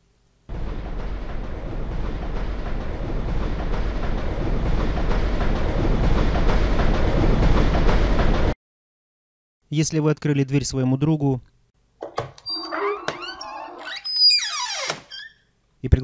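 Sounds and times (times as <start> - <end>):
train rumble approaching: 0.5 - 8.6.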